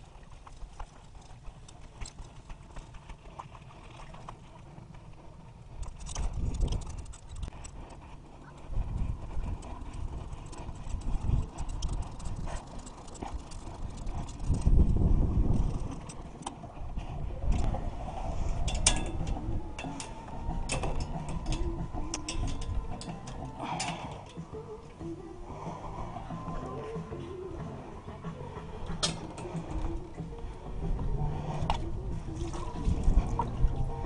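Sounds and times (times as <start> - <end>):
bicycle rattling and clicking: 0.0 - 24.5
wind rumbling on microphone: 0.0 - 34.0.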